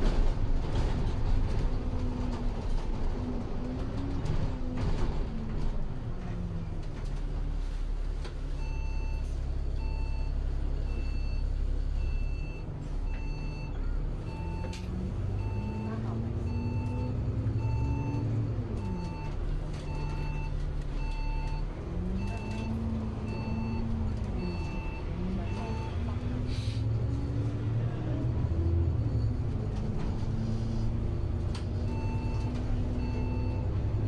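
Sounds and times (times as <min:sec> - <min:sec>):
bus engine running: 0:00.0 - 0:34.0.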